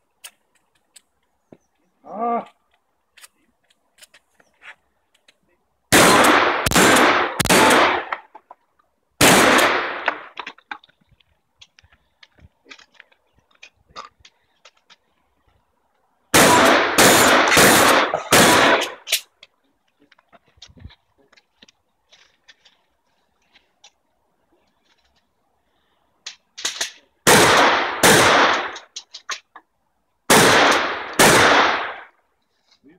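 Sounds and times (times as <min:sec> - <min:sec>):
shotgun shots echoing: 0:05.9 - 0:08.3, 0:09.2 - 0:10.4, 0:16.3 - 0:19.1, 0:27.2 - 0:28.8, 0:30.3 - 0:32.1.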